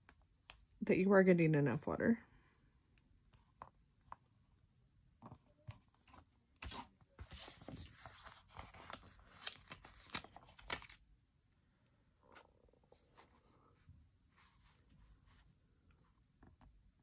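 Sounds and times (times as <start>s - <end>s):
paper rustling and crinkling: 5.7s - 11.0s.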